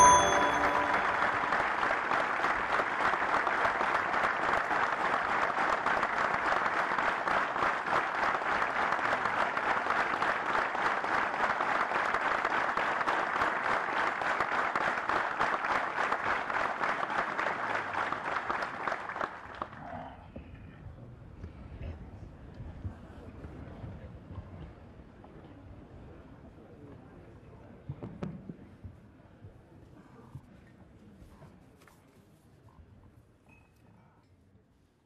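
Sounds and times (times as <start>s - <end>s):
crowd applauding: 0.0s - 19.7s.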